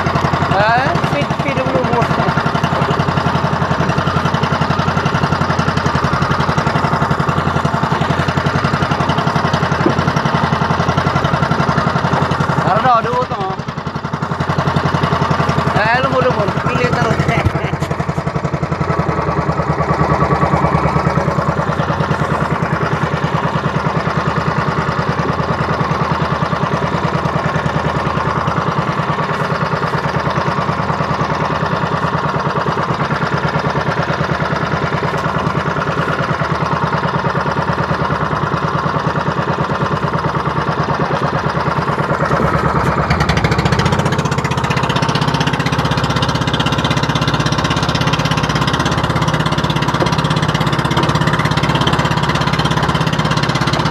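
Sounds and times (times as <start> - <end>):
boat engine chugging: 0.0 - 53.9.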